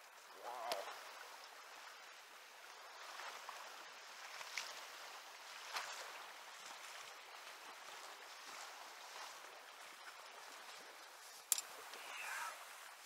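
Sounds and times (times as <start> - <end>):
river current over riffle: 0.0 - 13.0.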